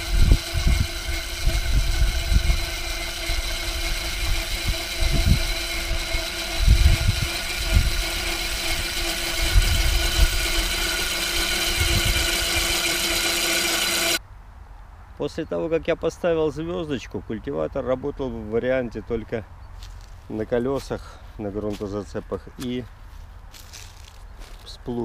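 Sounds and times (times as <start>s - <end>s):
electric motor whine: 0.0s - 14.2s
tiller tines thudding through soil: 0.0s - 14.2s, 23.5s - 24.7s.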